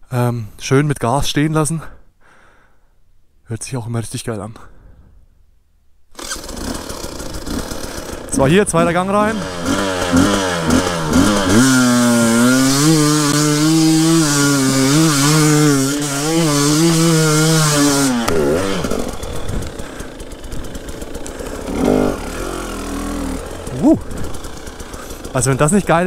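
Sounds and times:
two-stroke motorcycle engine revving: 6.2s - 26.0s.

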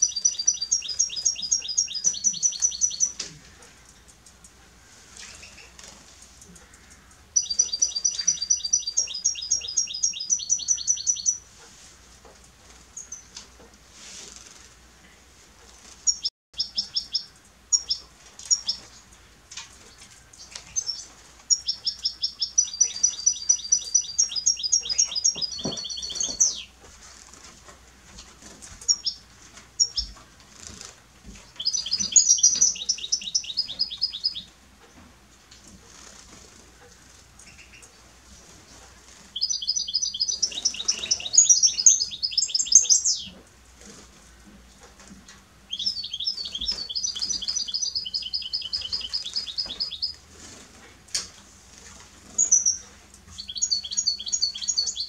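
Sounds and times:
finch singing: 0.0s - 3.8s, 6.6s - 11.5s, 16.1s - 19.0s, 20.4s - 26.8s, 28.8s - 29.2s, 29.8s - 30.2s, 31.4s - 34.5s, 39.2s - 43.4s, 45.7s - 50.2s, 52.3s - 55.0s.

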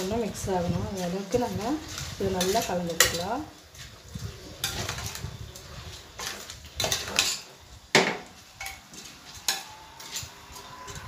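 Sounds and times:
ladle scraping metal pot: 4.2s - 7.5s.

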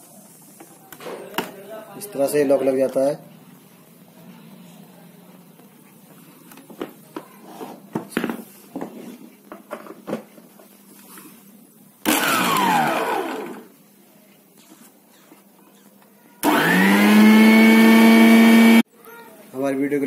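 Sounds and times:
mixer grinder motor running: 12.0s - 13.7s, 16.4s - 18.8s.

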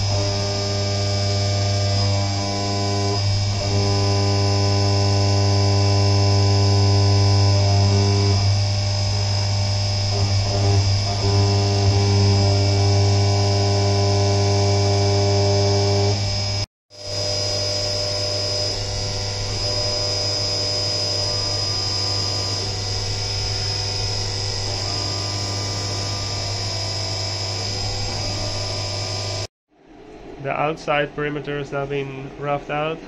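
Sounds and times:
milling machine hum and whine: 0.0s - 33.0s.

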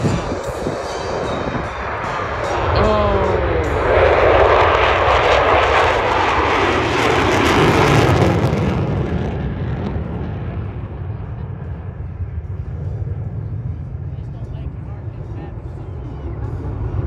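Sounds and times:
jet fly-by rush: 0.0s - 17.0s.

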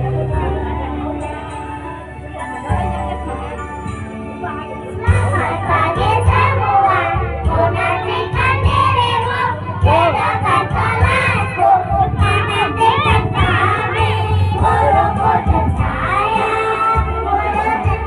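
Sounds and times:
children singing loudly: 5.1s - 18.0s.

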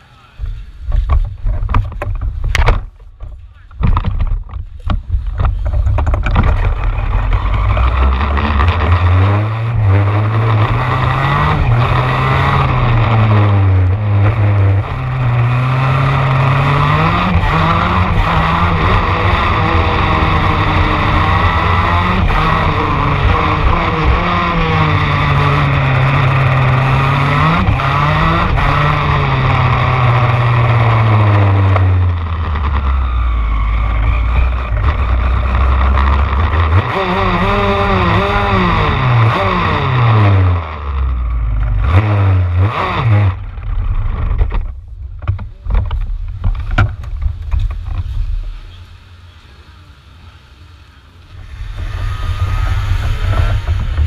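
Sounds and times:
kart engine revving and popping: 0.4s - 50.0s, 51.1s - 54.0s.

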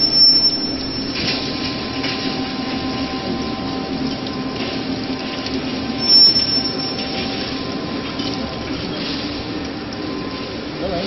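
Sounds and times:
high-pitched squeal: 0.0s - 1.4s, 6.0s - 7.5s
rolling mill humming: 0.0s - 11.0s
constant hiss: 6.0s - 8.3s.

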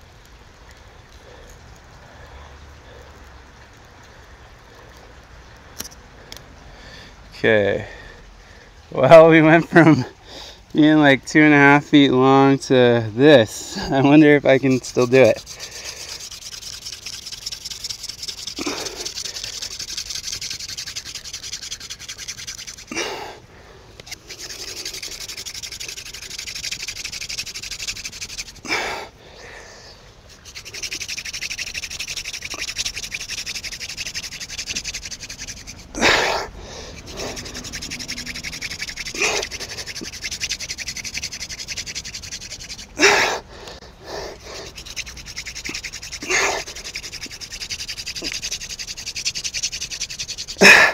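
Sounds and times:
wooden spindle rasping in hearth: 13.2s - 23.4s, 24.0s - 29.1s, 30.3s - 50.9s.

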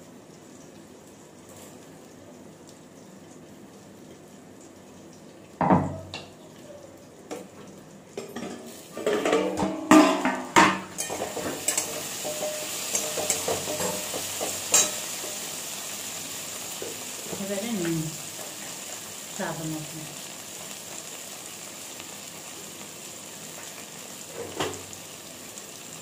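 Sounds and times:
vegetables sizzling: 0.0s - 26.0s
steel lid clanking on pan: 8.2s - 15.5s
spatula scraping pan: 11.0s - 15.6s.

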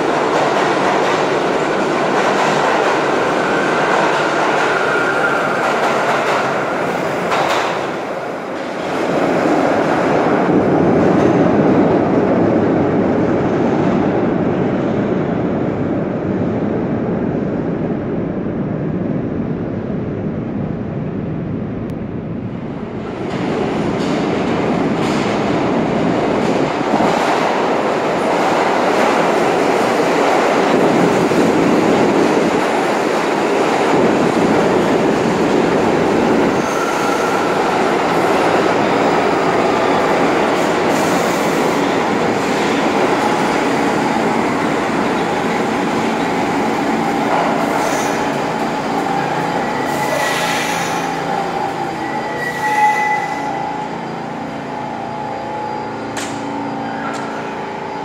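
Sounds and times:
subway train wheels on rails: 0.0s - 58.0s
high squealing wheels or brakes: 4.5s - 5.6s, 36.5s - 37.8s, 49.1s - 58.0s.

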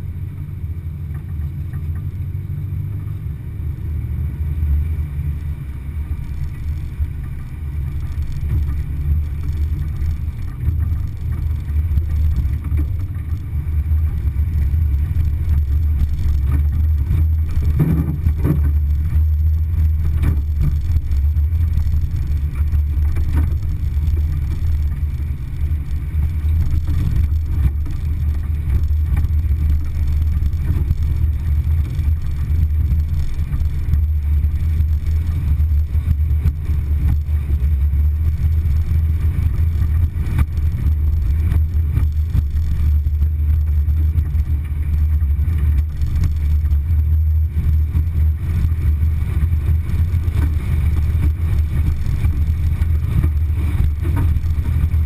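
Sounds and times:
vehicle driving on dirt trail: 0.0s - 55.0s.

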